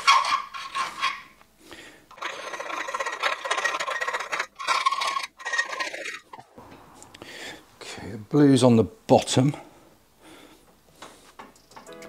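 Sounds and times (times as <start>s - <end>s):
hand file rasping on metal: 2.1s - 6.2s.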